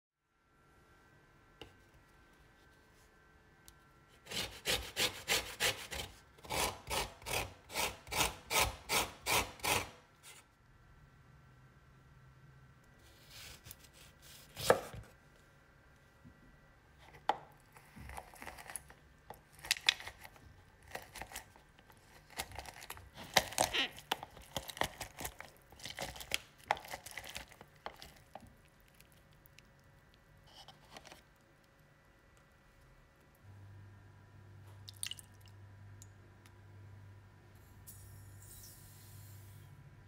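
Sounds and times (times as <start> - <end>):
knife cutting lemon on wooden board: 13.2 - 15.0
plastic citrus juicer scraping and squeaking: 22.0 - 27.2.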